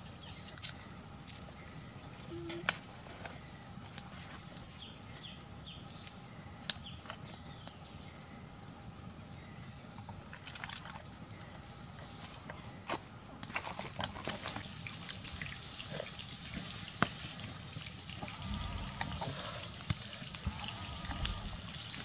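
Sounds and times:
high insect drone: 0.0s - 22.0s
birds chirping: 18.0s - 22.0s.

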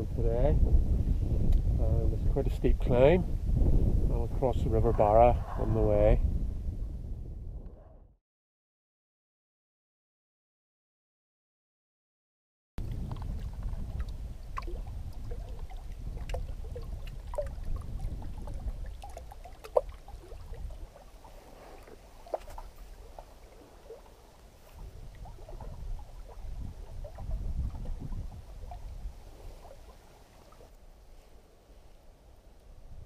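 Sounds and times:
wind rumble on microphone: 0.0s - 8.2s, 12.8s - 31.5s, 32.4s - 33.0s
water plinks and plops: 12.8s - 30.7s
waves lapping against rocks: 12.8s - 30.8s.

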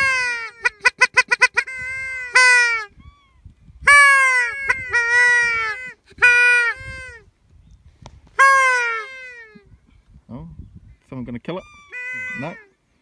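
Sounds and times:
duck calls: 0.0s - 2.9s, 3.9s - 7.2s, 8.4s - 9.6s, 11.8s - 12.7s.

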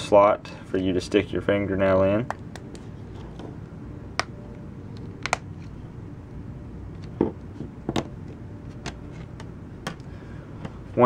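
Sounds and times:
plastic clips snapping: 5.0s - 5.5s.

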